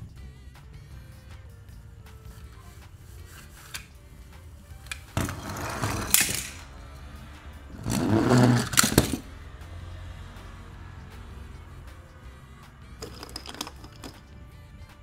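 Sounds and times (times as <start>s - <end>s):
toy cars scraping in cardboard box: 5.1s - 6.7s, 7.7s - 9.3s.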